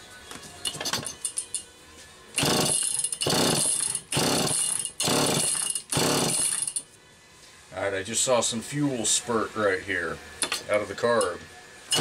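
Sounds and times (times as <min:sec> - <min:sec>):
chainsaw engine cranking: 0:02.4 - 0:06.8.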